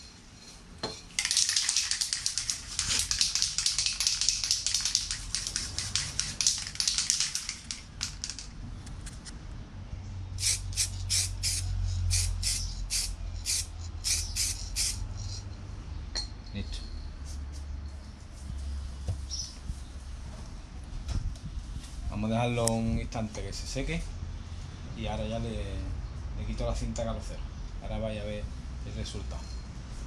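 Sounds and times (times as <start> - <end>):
aerosol spray can hissing: 1.2 - 8.2, 10.4 - 15.4.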